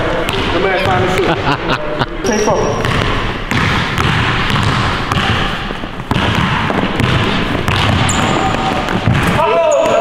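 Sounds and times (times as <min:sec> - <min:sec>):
basketball dribbling on wooden floor: 0:02.8 - 0:10.0.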